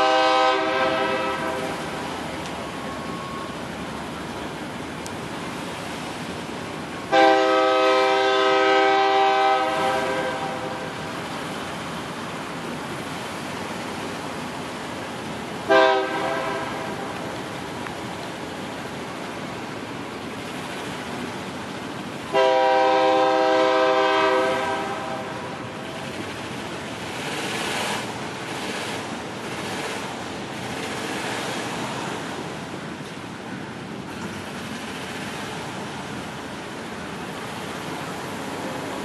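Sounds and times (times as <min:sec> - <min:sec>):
train horn chord blast: 0:00.0 - 0:02.1, 0:07.1 - 0:11.0, 0:15.7 - 0:17.2, 0:22.3 - 0:25.7
freight train cars rolling: 0:00.0 - 0:39.0.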